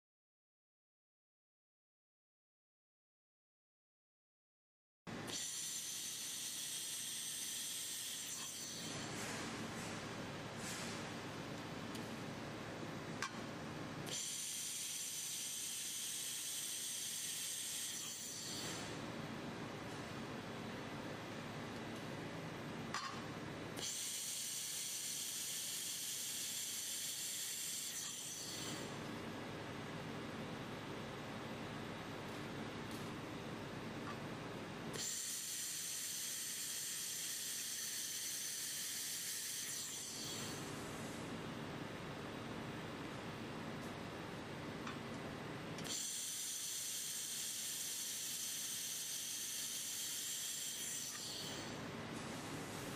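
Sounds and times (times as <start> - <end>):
welding gas hiss: 5.3 - 9.1, 14.1 - 18.9, 23.8 - 28.9, 35.0 - 41.0, 45.9 - 51.7.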